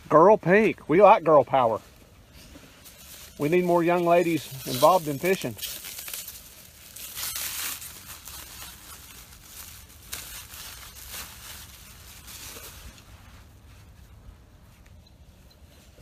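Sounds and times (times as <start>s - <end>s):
plastic bag crinkling and tearing: 2.8s - 13.4s.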